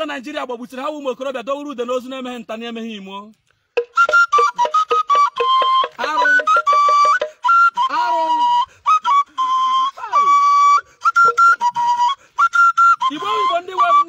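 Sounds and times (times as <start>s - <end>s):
high flute-like melody: 3.8s - 14.0s.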